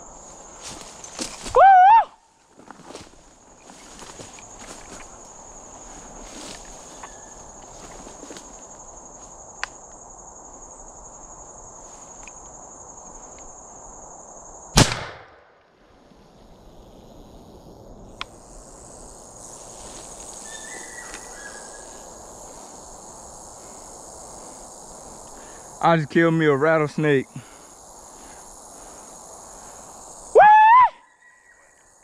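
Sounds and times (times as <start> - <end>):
high insect drone: 0.0 - 32.0
shotgun blast: 14.8 - 15.5.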